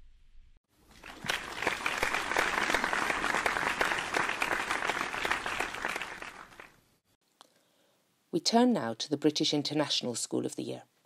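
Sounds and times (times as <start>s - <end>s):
crowd applause: 0.9s - 6.8s.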